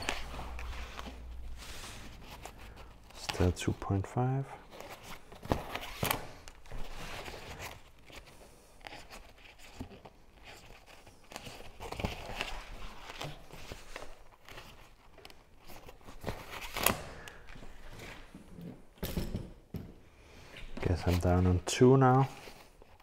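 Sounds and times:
fabric rustling and crinkling: 0.0s - 4.0s, 4.6s - 19.0s.

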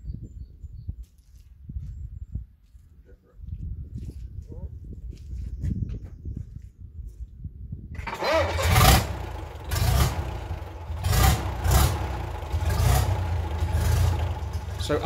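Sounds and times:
diesel engine starting and revving: 8.0s - 15.0s.

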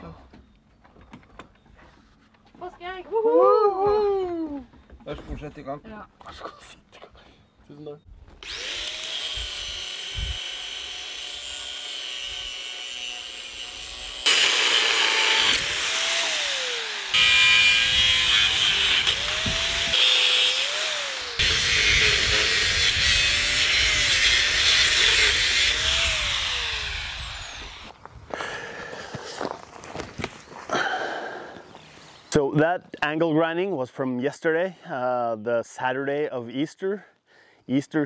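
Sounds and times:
angle grinder cutting steel: 8.4s - 27.9s.

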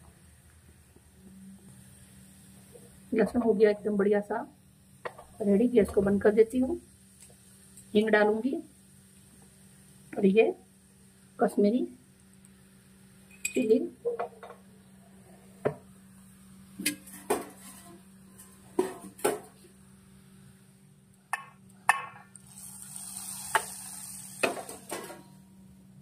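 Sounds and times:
hot oil sizzling: 0.6s - 14.8s, 15.6s - 25.8s
pan and utensils clinking: 24.4s - 25.4s.

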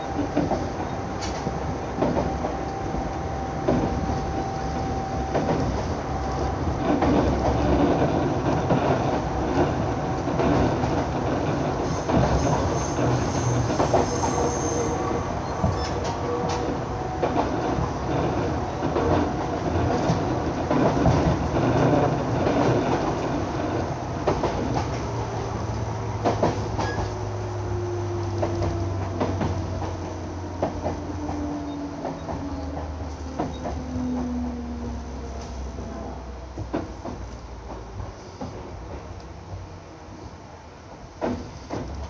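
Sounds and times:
train wheels clicking over rail joints: 15.6s - 34.4s, 36.5s - 39.3s, 41.2s - 42.0s.

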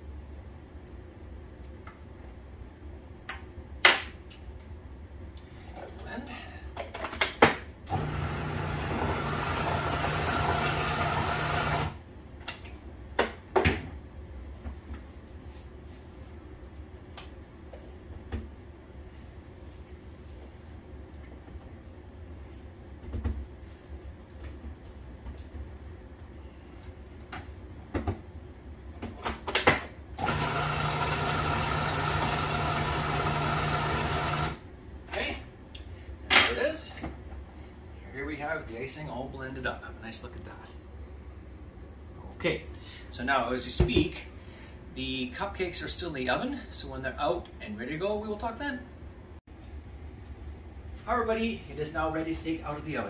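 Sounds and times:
food processor motor running: 7.9s - 12.0s, 30.2s - 34.6s.

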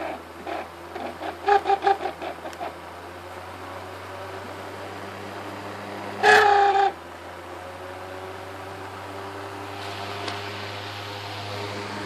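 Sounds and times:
fan motor humming: 8.3s - 12.0s.

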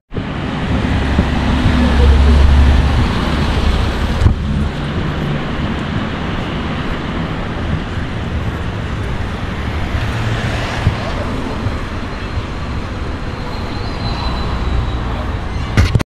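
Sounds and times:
wind on microphone: 0.1s - 14.4s
cars driving by: 0.1s - 16.0s
low rumble: 0.2s - 10.0s
sharp knock: 15.8s - 16.0s.

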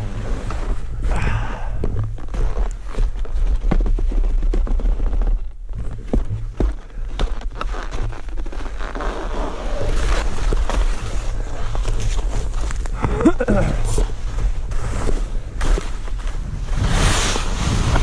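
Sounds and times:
skis scraping over snow: 2.1s - 13.0s, 13.8s - 18.0s
wind on microphone: 16.4s - 18.0s.

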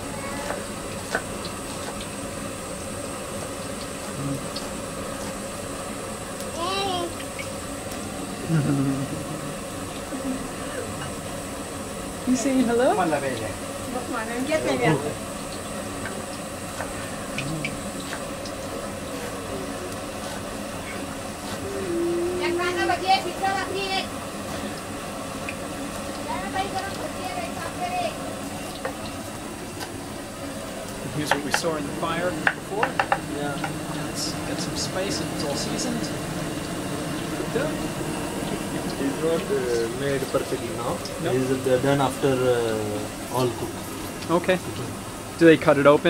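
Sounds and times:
onion frying in hot oil: 0.0s - 46.0s
stove hissing: 0.0s - 46.0s
steel bowl clicks and taps: 32.4s - 33.8s.

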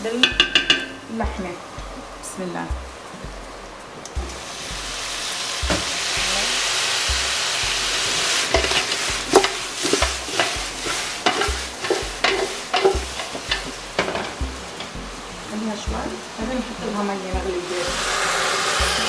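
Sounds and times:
meat sizzling in hot oil: 0.1s - 1.1s, 2.9s - 19.0s
pot knocks and clatters: 0.1s - 1.1s, 8.5s - 15.0s.

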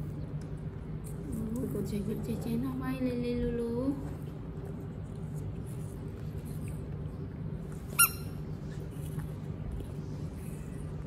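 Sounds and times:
steady low hum: 0.0s - 11.0s
baby monkey squeak: 8.0s - 8.3s.

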